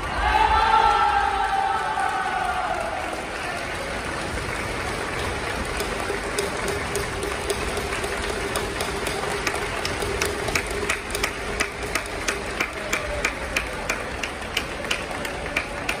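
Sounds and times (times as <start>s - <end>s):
sharp knocks or claps: 5.4s - 16.0s.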